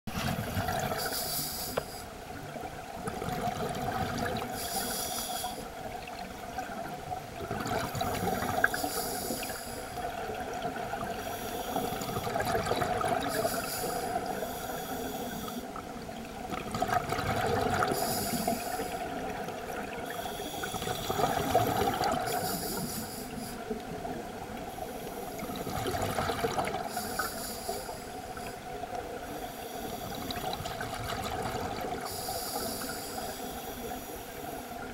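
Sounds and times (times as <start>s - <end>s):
exhaled air bubbling: 0.1s - 1.2s, 2.4s - 5.0s, 5.7s - 24.7s, 25.3s - 33.2s
regulator hiss on inhale: 1.0s - 2.2s, 4.5s - 5.8s, 8.0s - 10.1s, 11.0s - 12.4s, 13.2s - 15.8s, 17.8s - 19.3s, 20.0s - 23.8s, 24.6s - 25.7s, 26.8s - 30.4s, 32.0s - 34.9s.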